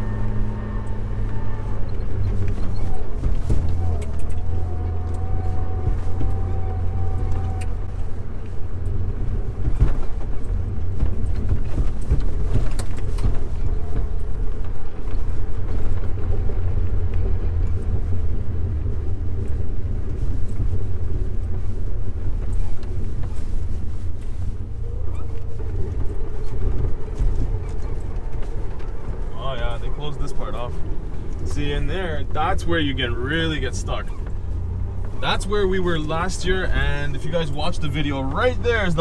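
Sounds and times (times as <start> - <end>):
low engine drone: 0.0 - 39.0
knocks and rattles: 9.1 - 18.3.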